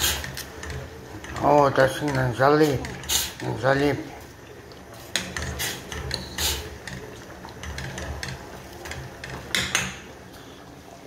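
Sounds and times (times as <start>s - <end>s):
spatula scraping and clacking on pot: 0.0s - 3.7s, 5.0s - 10.1s.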